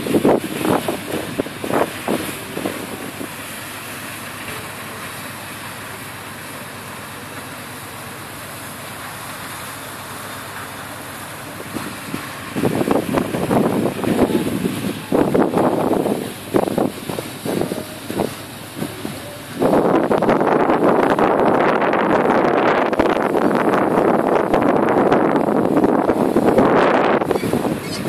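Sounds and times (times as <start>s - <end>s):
wind buffeting microphone: 0.0s - 3.5s, 11.6s - 28.0s
ship passing rushing noise: 0.0s - 28.0s.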